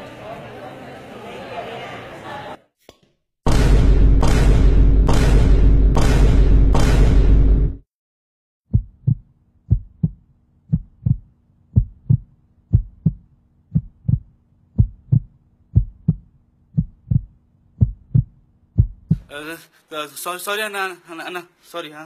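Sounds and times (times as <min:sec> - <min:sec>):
heartbeat thumps: 0:08.7 - 0:19.3.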